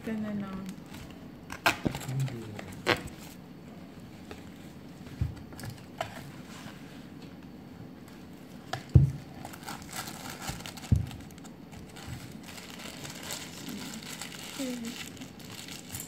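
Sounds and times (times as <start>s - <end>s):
food packaging crinkling: 9.3s - 16.0s.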